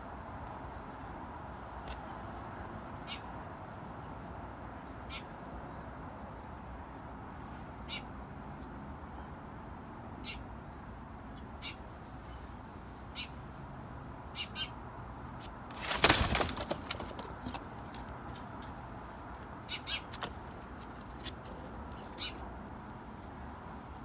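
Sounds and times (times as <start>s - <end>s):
wing flapping: 15.7s - 18.5s.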